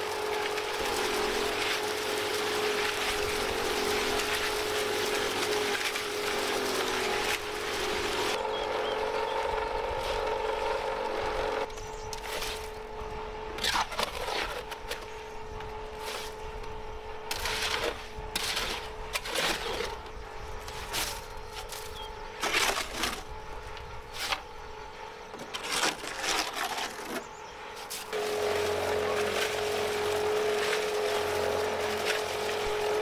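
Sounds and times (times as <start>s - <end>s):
machine motor humming: 0.0s - 13.6s, 28.1s - 33.0s.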